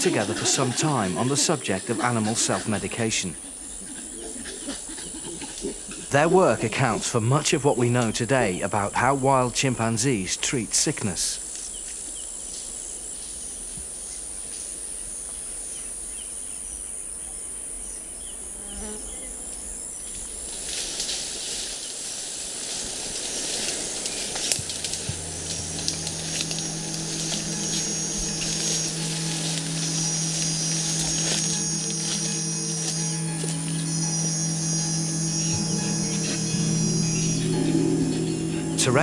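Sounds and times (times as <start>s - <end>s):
insects droning: 0.0s - 39.0s
rustling of undergrowth: 19.0s - 39.0s
low hum of held tones: 22.7s - 39.0s.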